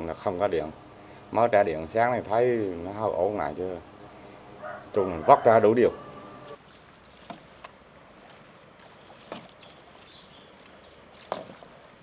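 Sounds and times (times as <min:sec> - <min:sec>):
water lapping: 0:00.0 - 0:12.0
paddle splashing in water: 0:06.4 - 0:12.0.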